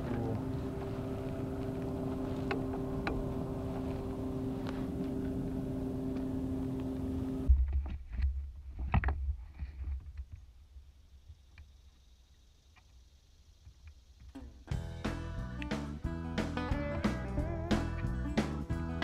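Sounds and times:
steady motor hum: 0:00.0 - 0:07.5.

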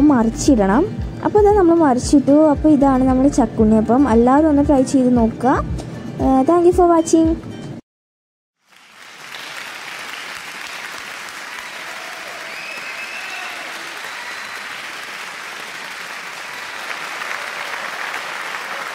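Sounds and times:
crowd applause: 0:08.6 - 0:18.9.

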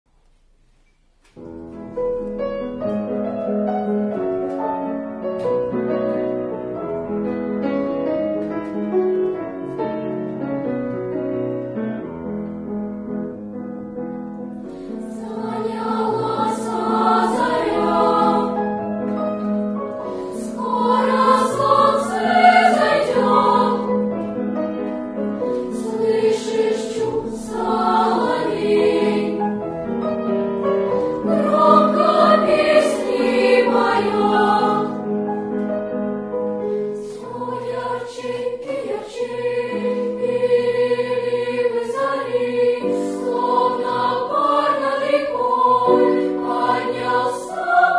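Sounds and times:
piano accompaniment: 0:01.3 - 0:47.9
children's choir singing: 0:14.9 - 0:24.4, 0:25.4 - 0:30.0, 0:30.7 - 0:35.3, 0:36.9 - 0:47.9.

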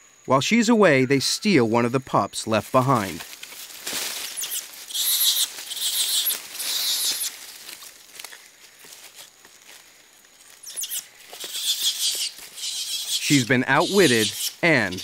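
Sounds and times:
rustling in branches: 0:02.5 - 0:15.0
animal squeals: 0:04.3 - 0:07.4, 0:10.6 - 0:15.0.

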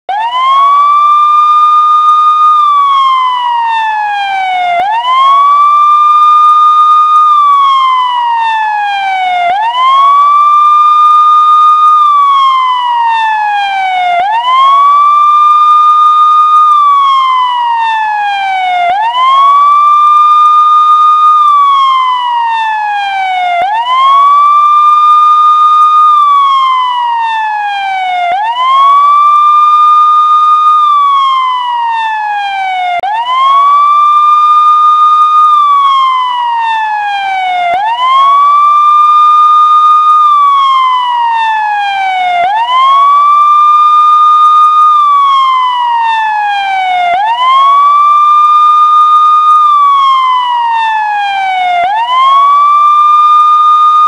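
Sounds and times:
electronic police siren wailing: 0:00.1 - 0:54.0.

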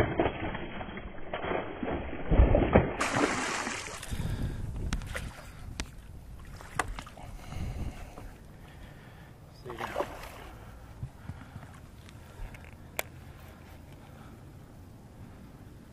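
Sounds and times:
fish thrashing and splashing: 0:00.0 - 0:04.4
water lapping: 0:03.0 - 0:12.5.

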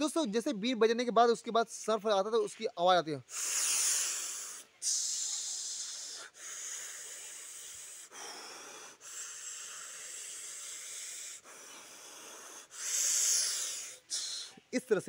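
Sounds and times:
man imitating snake hiss: 0:03.2 - 0:15.0.

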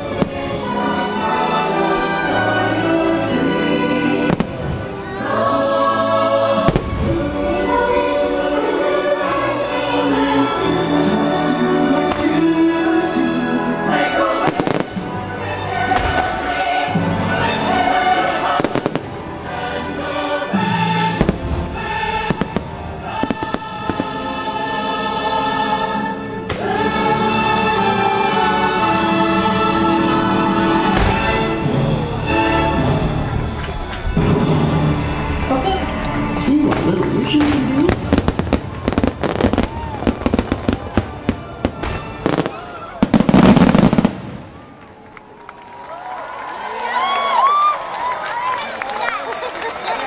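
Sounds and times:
choir singing: 0:00.0 - 0:44.4
orchestral music: 0:00.0 - 0:45.4
fireworks bangs: 0:04.2 - 0:05.0, 0:06.6 - 0:07.5, 0:15.9 - 0:16.7, 0:36.7 - 0:44.9.

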